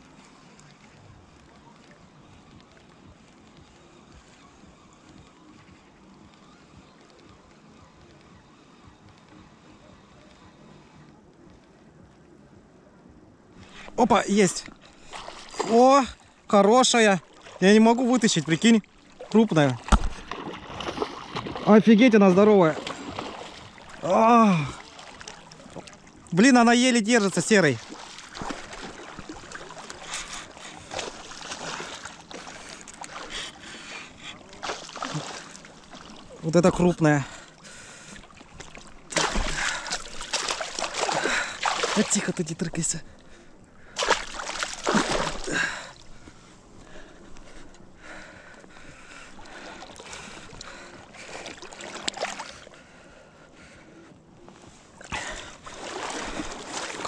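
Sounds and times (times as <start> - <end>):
steady wash of water: 13.9 - 53.0, 54.7 - 57.0
fish thrashing and splashing: 14.7 - 15.9, 18.6 - 22.0, 22.6 - 26.3, 27.7 - 48.0, 48.6 - 52.8, 55.0 - 57.0.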